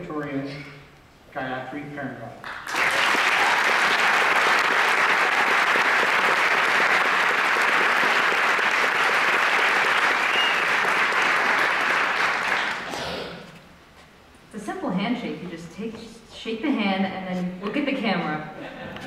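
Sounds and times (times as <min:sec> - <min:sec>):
audience applauding: 0:02.4 - 0:13.0.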